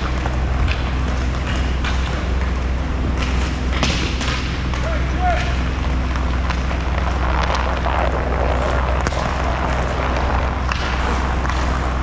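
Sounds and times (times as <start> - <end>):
hockey sticks and puck clacking: 0.0 - 7.2, 10.7 - 12.0
low hum: 0.0 - 12.0
rushing noise: 6.7 - 12.0.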